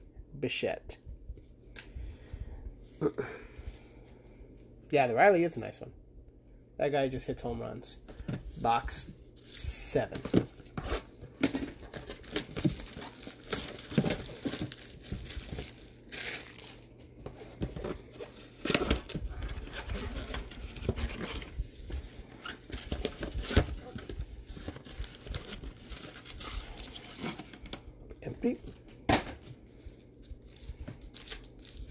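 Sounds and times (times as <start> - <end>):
cardboard and wrappers tearing: 11.9 - 16.8, 24.6 - 27.6.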